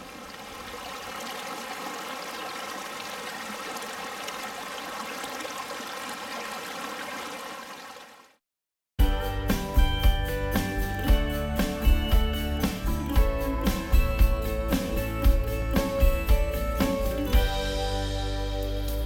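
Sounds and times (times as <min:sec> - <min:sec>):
running water: 0:00.0 - 0:08.4.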